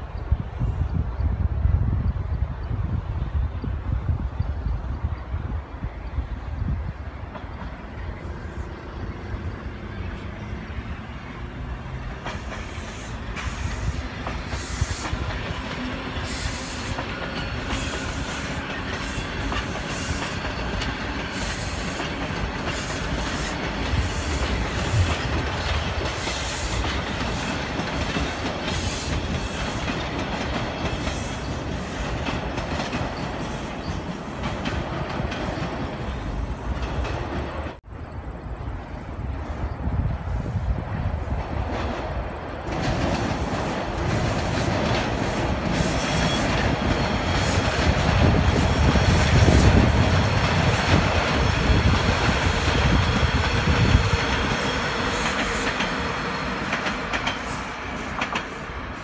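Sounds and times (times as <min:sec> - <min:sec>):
subway train rumbling past: 0:00.0 - 0:59.0
wheels clacking over rail joints: 0:09.4 - 0:37.8, 0:41.3 - 0:58.8.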